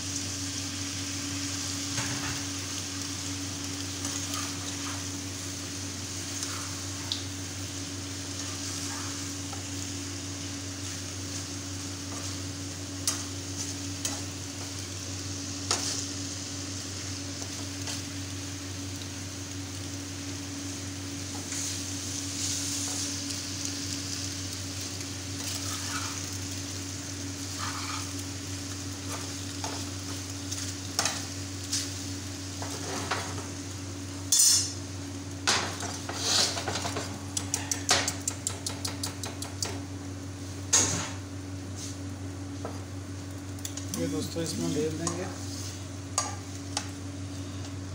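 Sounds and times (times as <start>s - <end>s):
steady low hum: 0.0s - 47.9s
metal spatula scraping a frying pan: 25.6s - 26.2s, 27.6s - 28.1s.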